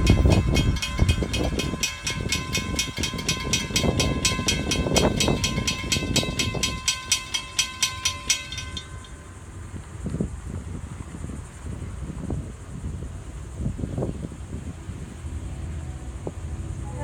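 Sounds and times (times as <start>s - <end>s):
railroad crossing bell ringing: 0.0s - 9.4s.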